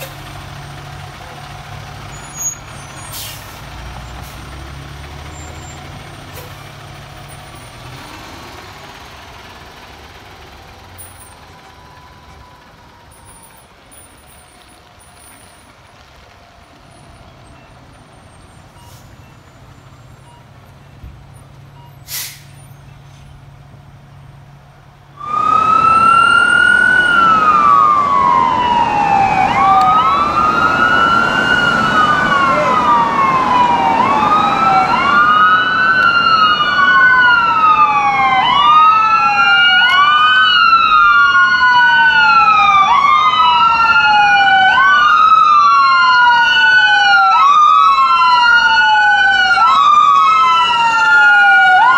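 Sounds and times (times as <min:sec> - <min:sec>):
fire engine pulling away: 0:00.0 - 0:51.9
faint distant siren: 0:10.6 - 0:20.6, 0:25.2 - 0:51.9
loud wail siren: 0:10.8 - 0:15.6, 0:25.2 - 0:51.9.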